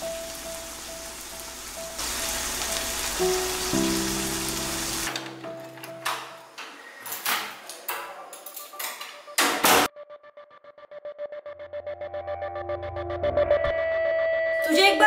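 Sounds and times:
rain hiss: 0.0 - 5.3.

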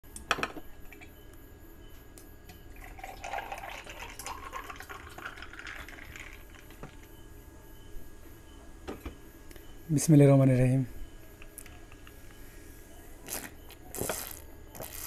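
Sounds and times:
liquid pouring over ice: 2.8 - 6.8.

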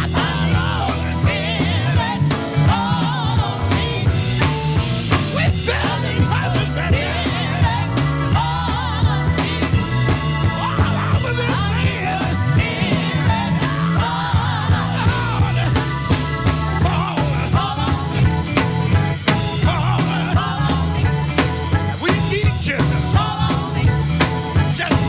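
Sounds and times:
man singing into microphone: 0.0 - 4.1, 5.3 - 9.6, 10.6 - 15.9, 16.7 - 18.2, 19.5 - 21.0, 22.0 - 23.9, 24.6 - 25.0
bass line: 0.0 - 25.0
drum kit: 0.0 - 25.0
electric guitar: 0.0 - 25.0.

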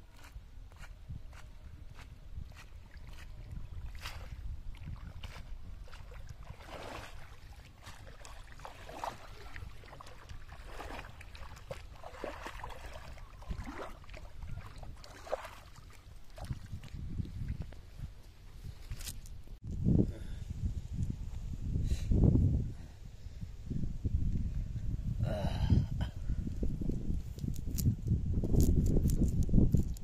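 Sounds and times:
wind rumble on microphone: 0.0 - 30.0
wading through shallow water: 0.1 - 18.8.

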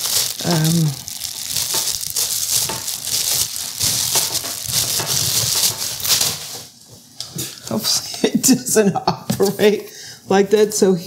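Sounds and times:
plastic wrap crinkling: 0.0 - 7.2.

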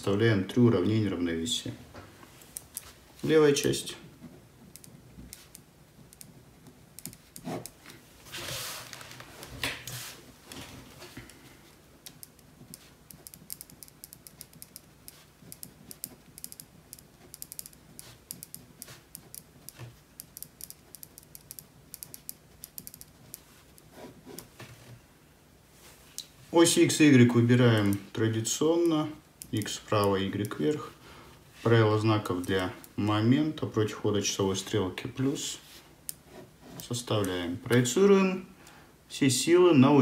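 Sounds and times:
hand and paper rustling: 7.4 - 11.3.

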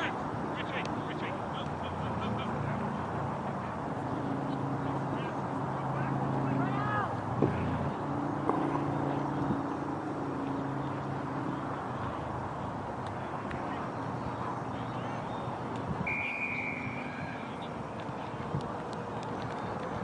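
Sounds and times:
outdoor background noise: 0.0 - 20.0
referee's whistle blast: 16.1 - 17.4.

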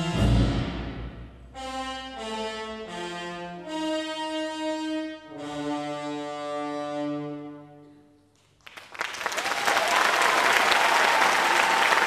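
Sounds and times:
audience applause: 8.6 - 12.0.

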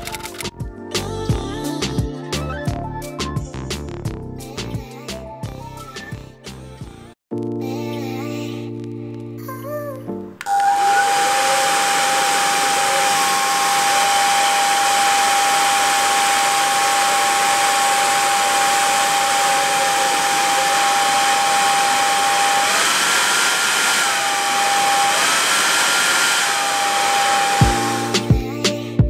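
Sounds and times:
hair dryer running: 10.4 - 28.6.

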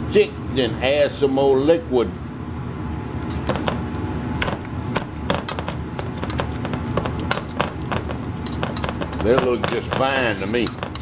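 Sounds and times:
potato masher scraping metal pot: 6.3 - 11.0.

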